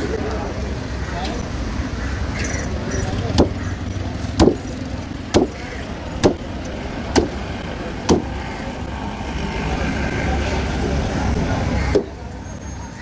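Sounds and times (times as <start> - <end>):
low traffic rumble: 0.0 - 13.0.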